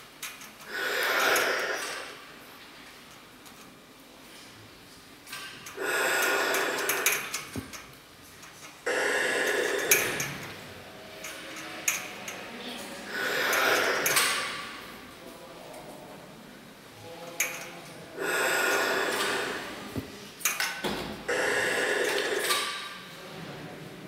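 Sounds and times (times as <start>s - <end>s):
loud breath-like rushes: 5.7s - 7.6s, 8.9s - 10.5s, 13.1s - 14.8s, 18.2s - 20.1s, 21.3s - 22.8s.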